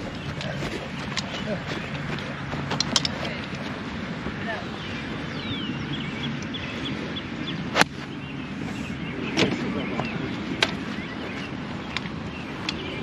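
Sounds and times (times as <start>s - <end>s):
golf club striking ball: 7.7s - 8.0s.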